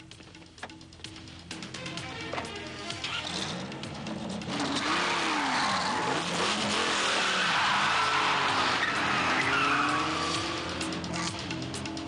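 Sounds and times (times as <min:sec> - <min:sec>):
car engine revving: 0:03.1 - 0:11.6
tyres squealing: 0:07.1 - 0:10.4.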